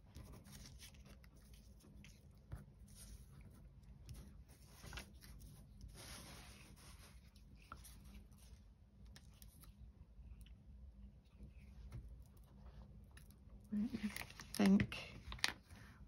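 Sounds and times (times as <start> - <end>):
paper rustling and sliding: 4.2 - 8.2.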